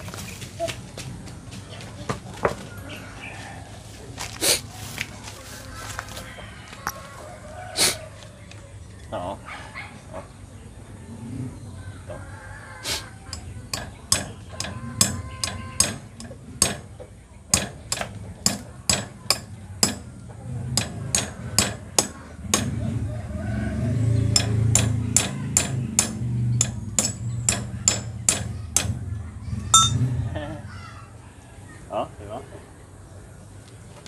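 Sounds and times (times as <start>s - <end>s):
hammer striking nail: 13.4s - 16.9s, 17.5s - 20.1s, 20.8s - 22.8s, 24.4s - 29.0s.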